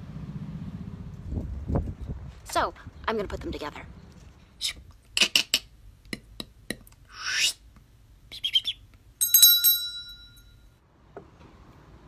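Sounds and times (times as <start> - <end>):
bell ringing: 9.2 - 10.7.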